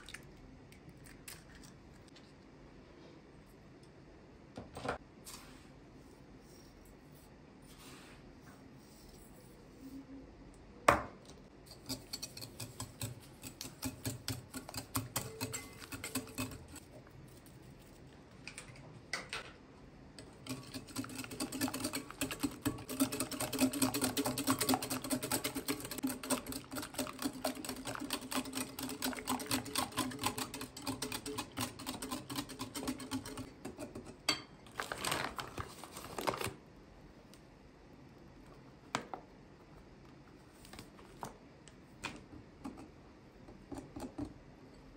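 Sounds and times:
whisk clicking against glass bowl: 11.7 - 16.8, 20.4 - 33.5.

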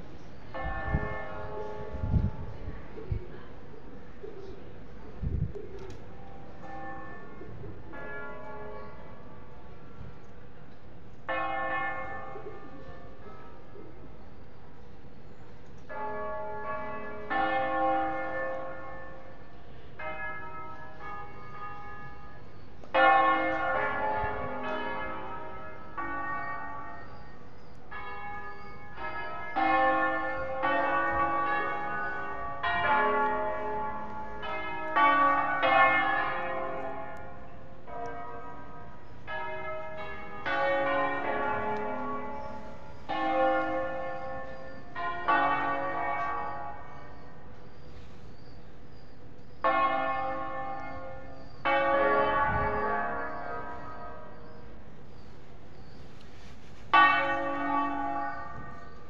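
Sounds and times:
church bells ringing: 0.0 - 5.2, 6.0 - 59.0.

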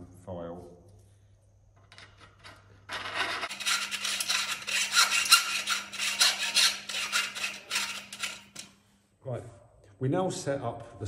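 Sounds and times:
file rasping inside metal pipe: 2.9 - 8.8.

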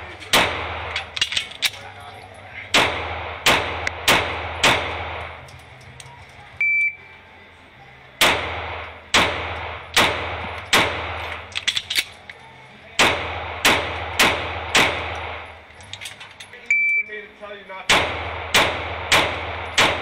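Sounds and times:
magazine reload clicks: 0.2 - 1.8, 8.2 - 12.4, 13.7 - 17.0
pistol shots with echo: 0.2 - 1.8, 2.7 - 5.5, 8.2 - 12.1, 12.9 - 15.7, 17.9 - 20.0
shot timer beep: 6.6 - 7.0, 16.7 - 17.1.

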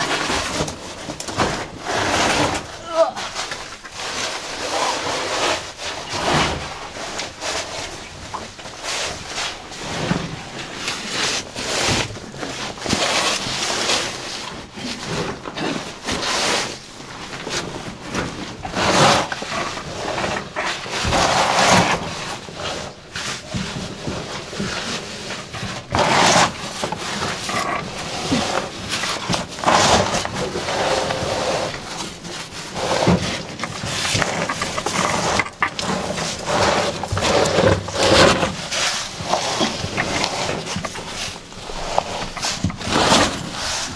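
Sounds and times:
clothing scraping over rock: 25.9 - 43.9.

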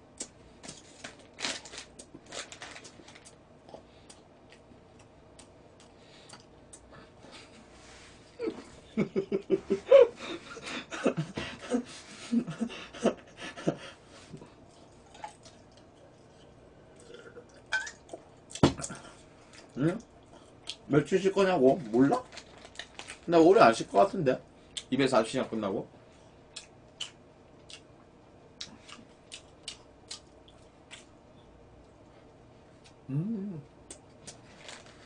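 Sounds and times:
man laughing with full mouth: 8.4 - 14.0.

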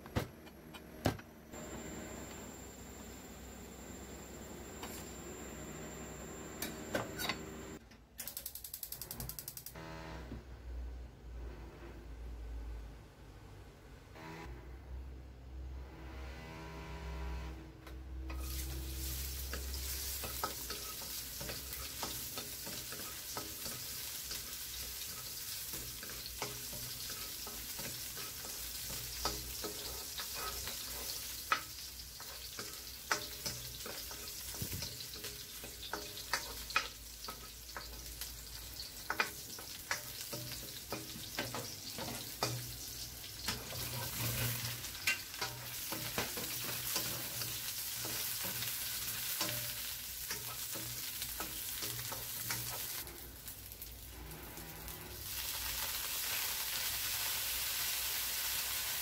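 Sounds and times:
spatula scraping a pan: 18.3 - 53.1
garlic sizzling in hot oil: 18.3 - 59.0.

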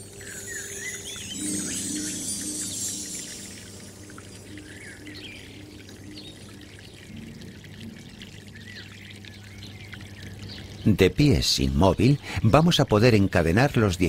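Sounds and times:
low held tones: 0.0 - 8.7
soft trickling water: 0.0 - 14.0.

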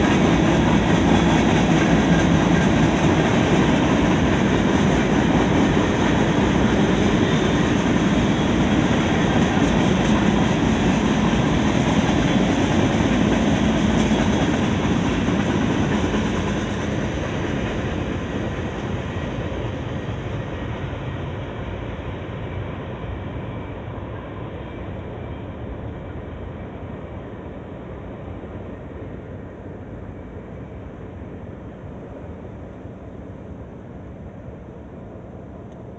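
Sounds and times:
train wheels rolling on rails: 0.0 - 35.9.

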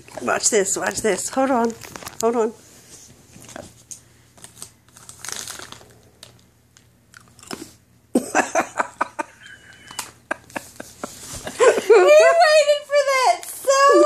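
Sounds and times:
dog crunching a treat: 4.4 - 7.8.

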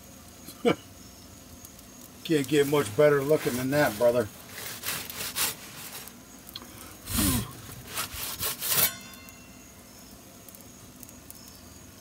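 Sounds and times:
pizza peel scraping stone: 2.8 - 6.2, 7.1 - 9.3.

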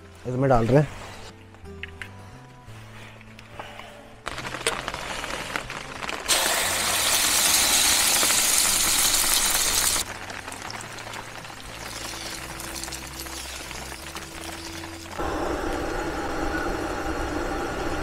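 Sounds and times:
eggs sizzling in hot oil: 5.6 - 15.2.

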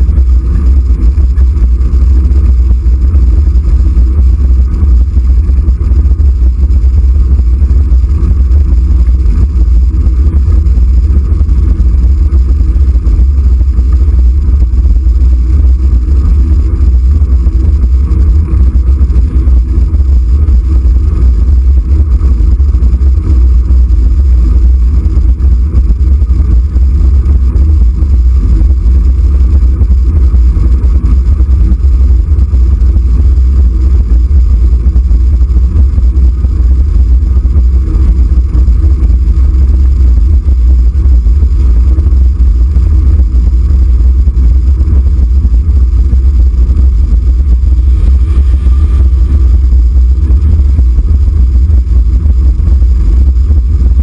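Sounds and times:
wind buffeting microphone: 47.8 - 50.6.

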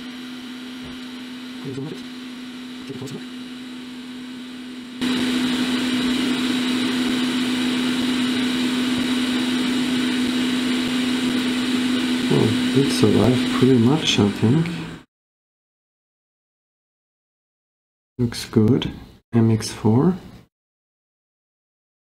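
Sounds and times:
electric fan humming: 0.0 - 15.1.

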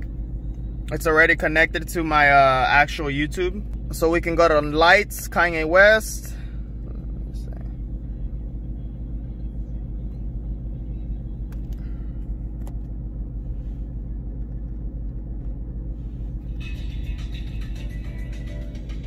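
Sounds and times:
car engine idling: 0.0 - 19.0
video ad through car speakers: 0.8 - 7.7, 16.3 - 19.0.

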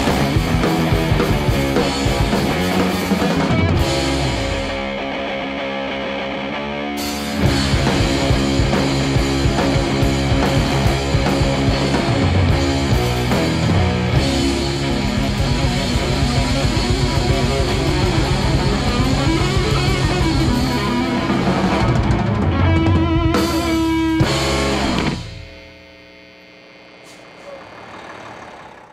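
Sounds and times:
guitar-driven rock music: 0.0 - 25.9.

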